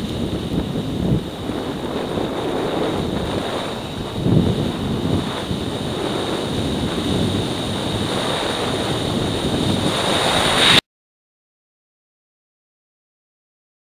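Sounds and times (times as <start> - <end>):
wind rushing over microphone: 0.0 - 10.8
faint high whine: 1.3 - 10.8.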